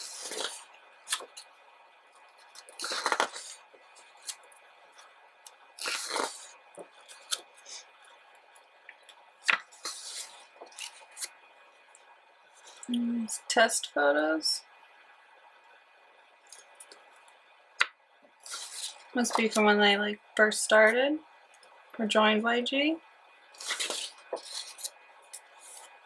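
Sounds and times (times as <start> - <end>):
paper pages turning: 2.4 - 3.6, 5.8 - 7.4, 9.4 - 11.3, 18.4 - 19.6, 23.6 - 25.0
pages tapping and rustling: 23.6 - 24.9.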